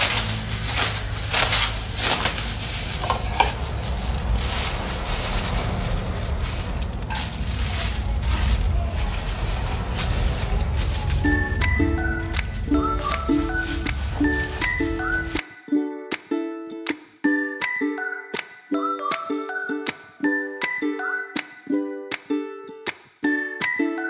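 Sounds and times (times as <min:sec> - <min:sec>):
ladle scraping and clinking: 0:00.0 - 0:08.4
steady low rumble: 0:00.0 - 0:15.4.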